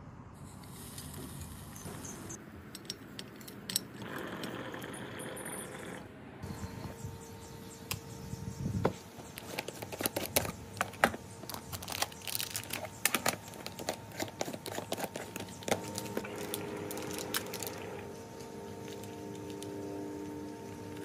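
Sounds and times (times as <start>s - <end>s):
plastic wrappers crinkling: 9.2s - 19.8s.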